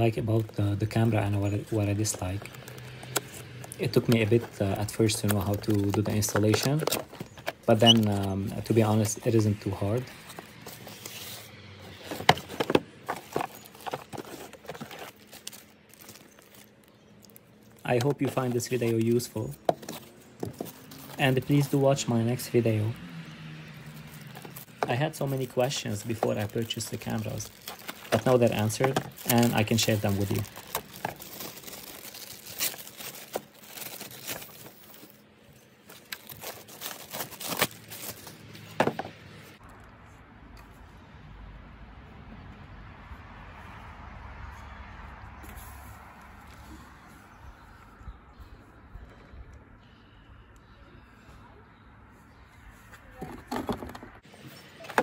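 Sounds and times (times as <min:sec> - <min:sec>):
plastic wrap crinkling: 0:00.0 - 0:11.2, 0:11.9 - 0:22.1, 0:23.9 - 0:35.2, 0:35.8 - 0:38.6
cardboard rustling: 0:00.0 - 0:22.4, 0:23.9 - 0:39.5, 0:53.2 - 0:55.0.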